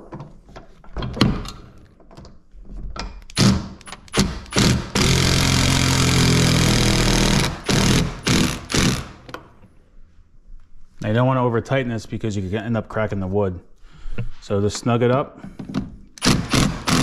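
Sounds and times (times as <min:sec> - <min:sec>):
impact driver driving a screw: 0:03.3 - 0:09.4, 0:16.2 - 0:17.0.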